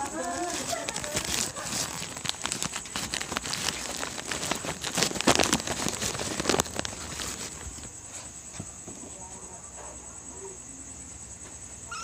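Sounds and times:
rustling scratching and tapping: 0:00.0 - 0:08.7.

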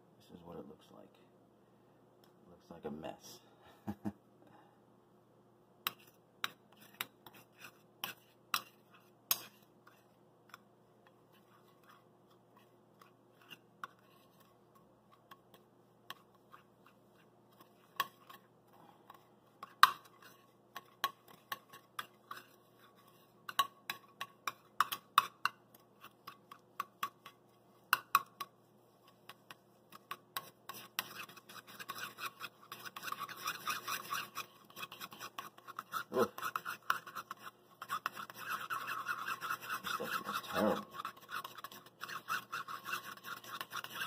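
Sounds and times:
metal spoon scraping steel bowl: 0:05.9 - 0:10.6, 0:19.1 - 0:27.4, 0:28.0 - 0:44.0.

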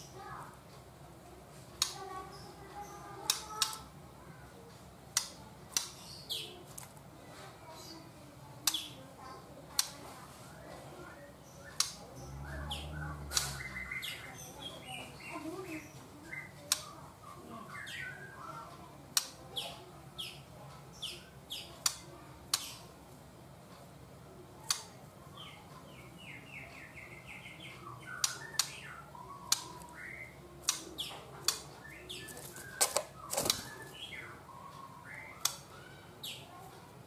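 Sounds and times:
sharp bird clicks: 0:01.8 - 0:02.1, 0:03.2 - 0:03.9, 0:05.1 - 0:06.5, 0:08.6 - 0:09.0, 0:09.7 - 0:10.0, 0:11.6 - 0:14.7, 0:16.3 - 0:17.0, 0:19.1 - 0:19.6, 0:21.0 - 0:22.9, 0:24.6 - 0:25.0, 0:26.7 - 0:35.9
bird chirping: 0:10.4 - 0:18.6, 0:24.7 - 0:36.6.

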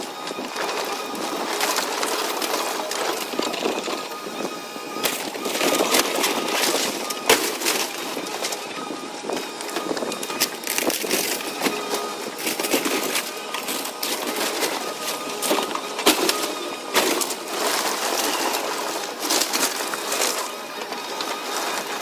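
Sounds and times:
excavator working: 0:00.0 - 0:22.0
timber cracking and splintering: 0:00.2 - 0:22.0.

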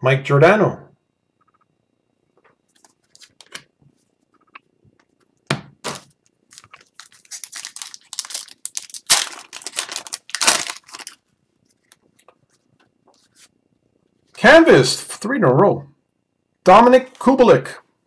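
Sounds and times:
foil wrapper crinkling and tearing: 0:06.0 - 0:12.3.

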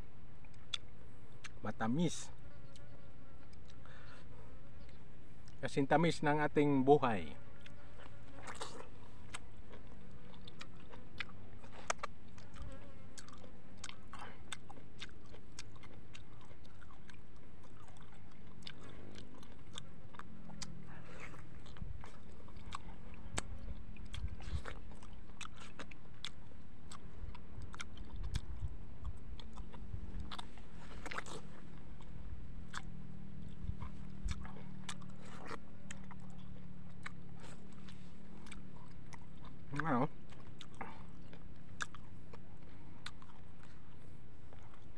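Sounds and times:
man chewing mango: 0:00.0 - 0:44.9
steady low hum: 0:00.0 - 0:44.9
sharp wet mouth clicks: 0:10.4 - 0:31.5, 0:33.5 - 0:42.4.

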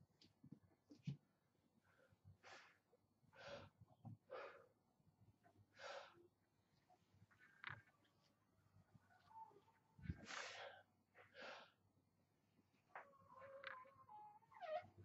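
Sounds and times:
man breathing hard: 0:10.1 - 0:11.8.

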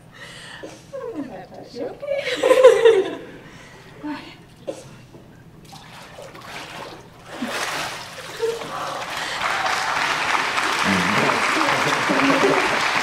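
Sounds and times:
water splashing and sloshing: 0:05.6 - 0:09.4
person's voice: 0:10.9 - 0:12.7.

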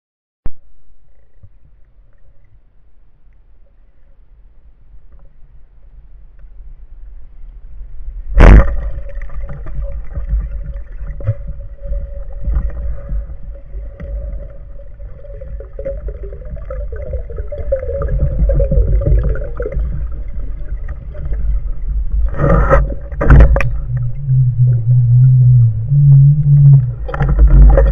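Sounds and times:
low underwater rumble: 0:00.5 - 0:27.9
speargun crack underwater: 0:08.4 - 0:09.7.

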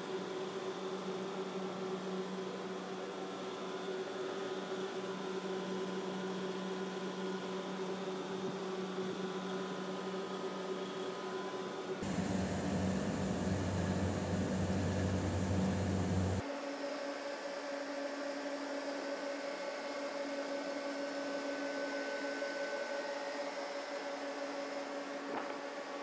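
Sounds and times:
chiller machinery humming: 0:07.5 - 0:16.5.

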